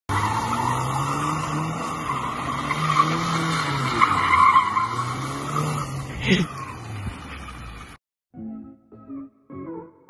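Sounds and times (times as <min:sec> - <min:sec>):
car engine revving: 0:00.1 - 0:08.0.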